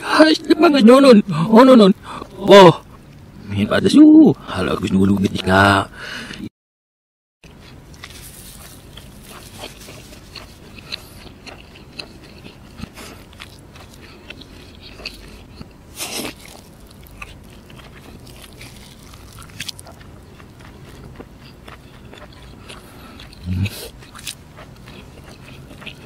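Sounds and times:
person chewing: 7.4 - 26.0
food crackle: 7.6 - 26.0.

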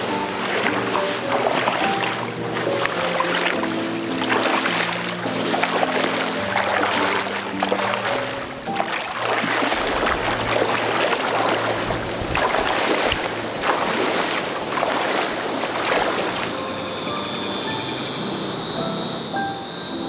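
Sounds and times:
footsteps wading through water: 0.0 - 17.0.

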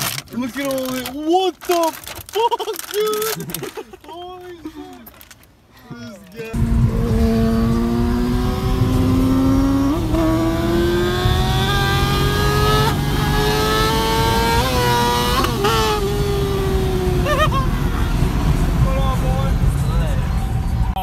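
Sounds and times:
car engine accelerating: 6.6 - 21.0.

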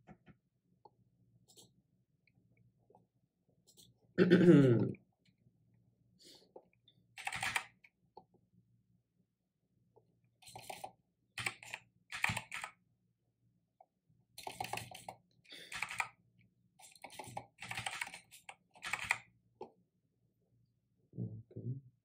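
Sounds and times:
computer keyboard typing: 7.2 - 7.8, 10.4 - 12.8, 14.4 - 16.2, 16.8 - 19.3.

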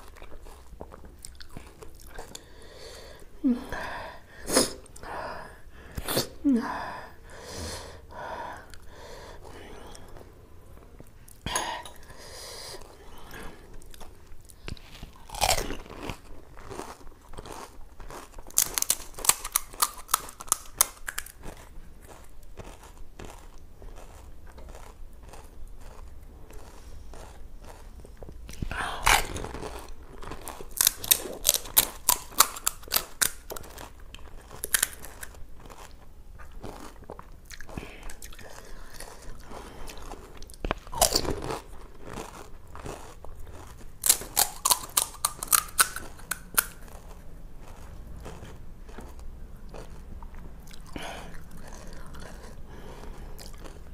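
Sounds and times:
crisp shells crunching when chewed: 0.0 - 2.6, 12.8 - 53.9.

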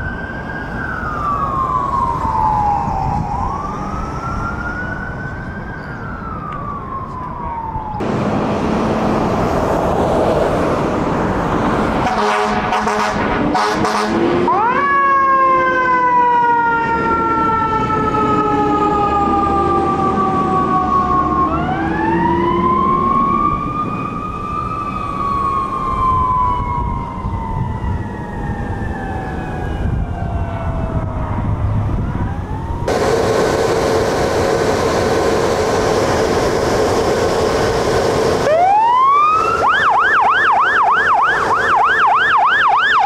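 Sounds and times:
siren with steady held tones: 0.0 - 8.0, 13.8 - 34.8, 38.3 - 43.0
truck engine rumble: 0.0 - 14.7, 17.4 - 43.0
fire engine siren wailing: 0.0 - 43.0.

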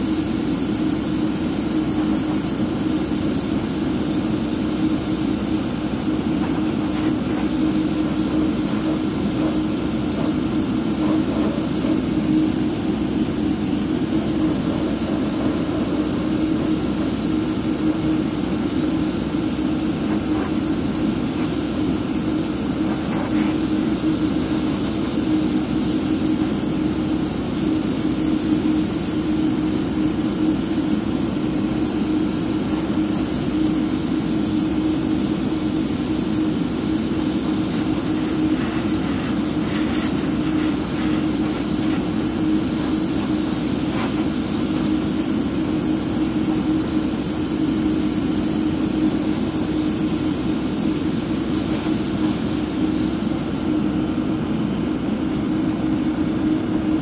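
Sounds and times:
air hissing: 0.0 - 53.8
airbrush motor hum: 36.7 - 45.1.

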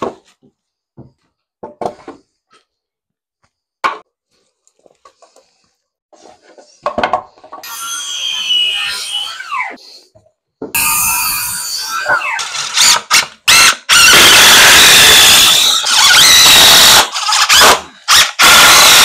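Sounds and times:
circular saw cutting board: 7.6 - 10.0, 10.7 - 19.0.

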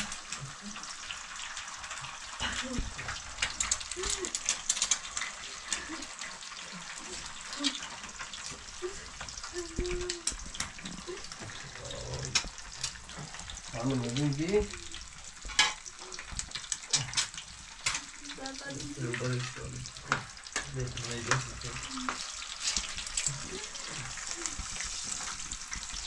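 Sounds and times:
heavy rain hissing: 0.0 - 26.0
person's low voice: 8.8 - 12.4.

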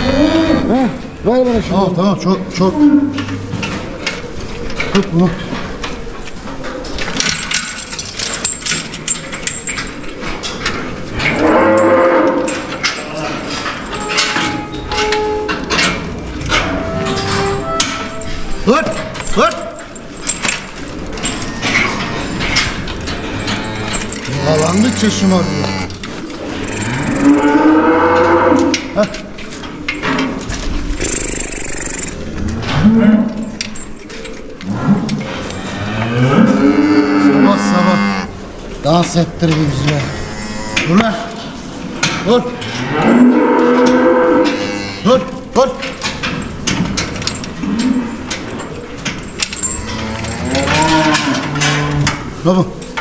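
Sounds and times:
calf mooing: 23.2 - 28.9, 35.6 - 38.4, 39.7 - 41.0, 42.6 - 45.2, 49.8 - 52.2
knocks and clatter: 45.8 - 53.0.

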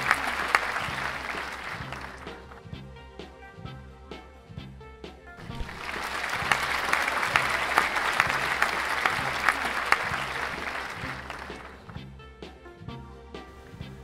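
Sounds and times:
crowd applause: 0.0 - 2.7, 5.4 - 12.0.

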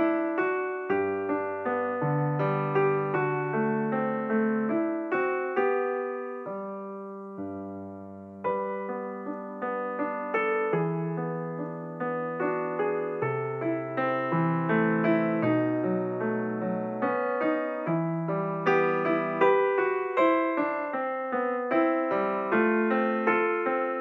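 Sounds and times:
solo piano music: 0.0 - 24.0.

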